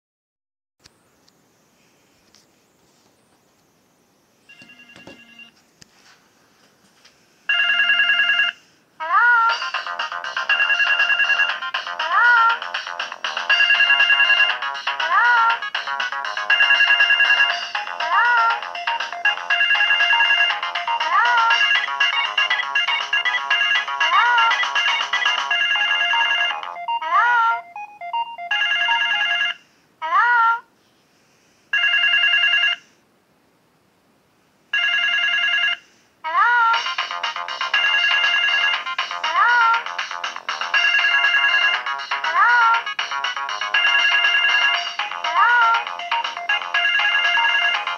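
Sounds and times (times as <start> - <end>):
mobile phone ringtone melody: 4.5 - 5.6, 7.5 - 8.7, 9.5 - 29.6, 31.7 - 32.9, 34.8 - 35.9, 36.7 - 47.9.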